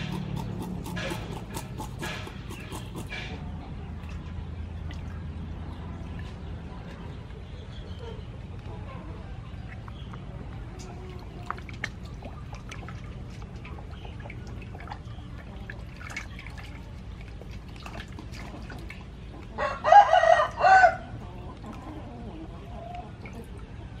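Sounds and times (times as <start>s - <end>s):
water splashing in steel bowl: 9.6s - 19.4s
rooster crowing: 19.6s - 21.1s.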